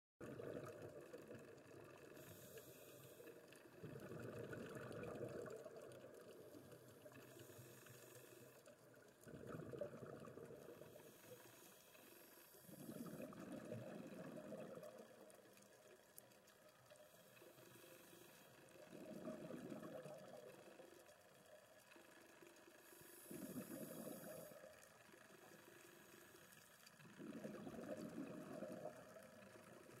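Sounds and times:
exhaled bubbles gushing: 0:00.2 - 0:02.3, 0:03.6 - 0:07.4, 0:08.9 - 0:11.1, 0:12.6 - 0:15.8, 0:18.8 - 0:21.1, 0:23.2 - 0:24.7, 0:27.0 - 0:30.0.

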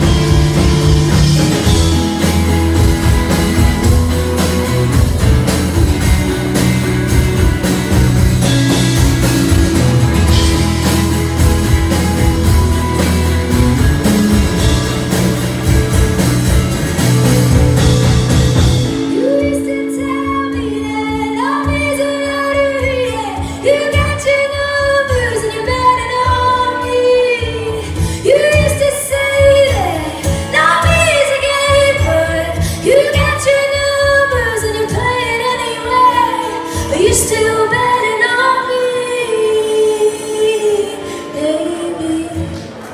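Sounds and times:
acoustic guitar: 0:00.0 - 0:42.9
band with bass and drums: 0:00.0 - 0:42.9
woman singing: 0:19.0 - 0:42.9.

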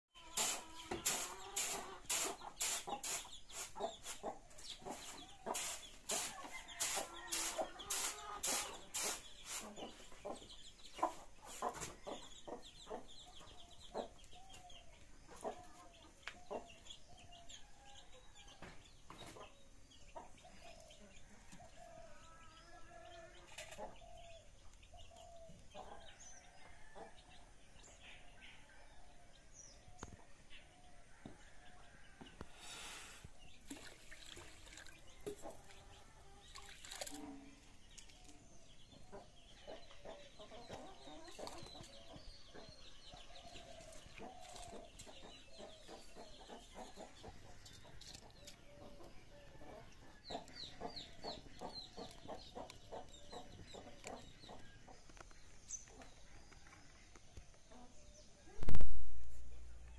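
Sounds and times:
chickens clucking: 0:00.2 - 0:59.9
straw broom sweeping dirt: 0:00.3 - 0:10.0.

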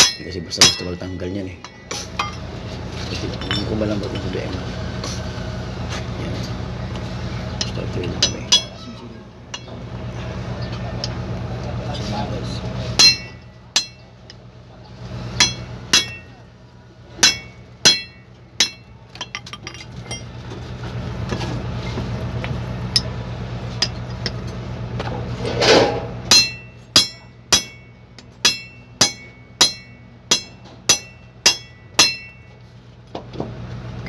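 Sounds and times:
hammer striking steel punch: 0:00.0 - 0:02.4, 0:13.0 - 0:14.1, 0:15.4 - 0:16.4, 0:17.2 - 0:20.2, 0:26.3 - 0:32.6
low steady hum: 0:00.0 - 0:34.0.

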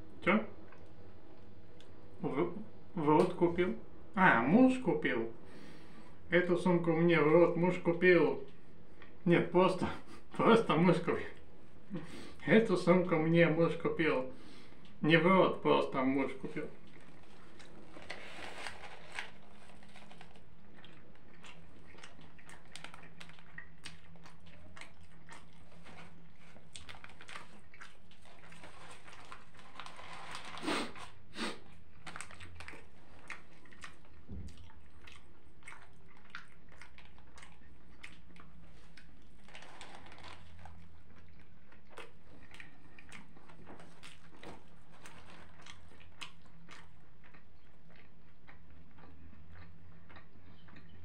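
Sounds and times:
person chewing food: 0:14.4 - 0:15.0, 0:16.6 - 0:51.0.

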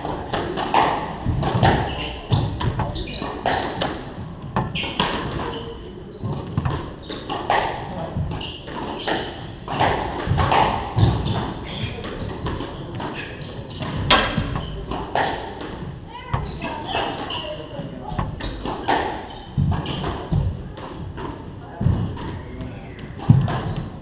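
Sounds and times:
voices murmuring: 0:00.0 - 0:24.0
squash ball smacking walls: 0:13.8 - 0:17.0.

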